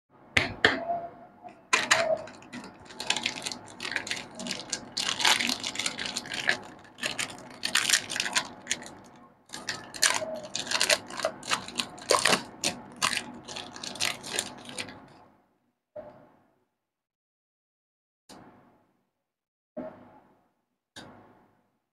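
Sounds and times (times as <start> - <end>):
plastic wrapper crinkling and tearing: 1.8 - 15.1.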